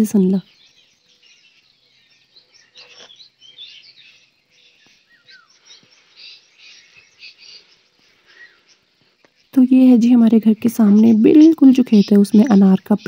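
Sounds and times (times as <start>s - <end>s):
small birds chirping: 0.0s - 13.0s
falling bird whistle: 5.0s - 8.8s.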